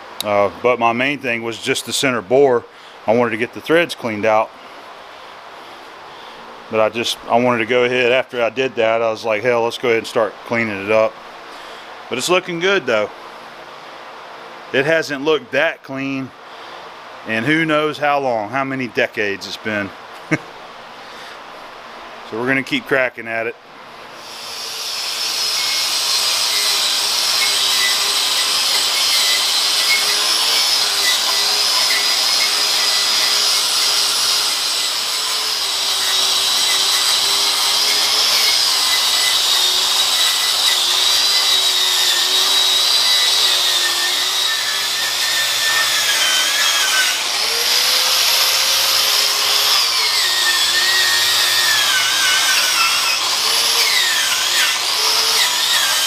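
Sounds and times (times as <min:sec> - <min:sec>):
angle grinder on metal: 0:24.2 - 0:56.0.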